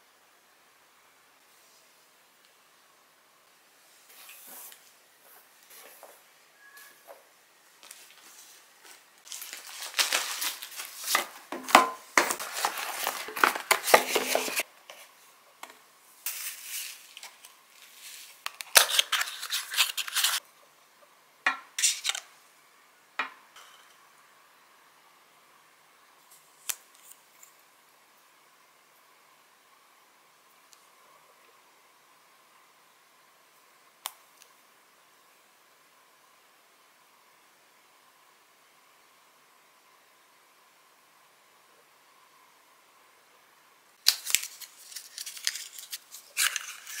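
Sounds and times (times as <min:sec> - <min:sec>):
plastic envelope crinkling: 0:08.9 - 0:14.6, 0:16.3 - 0:20.4, 0:44.0 - 0:47.0.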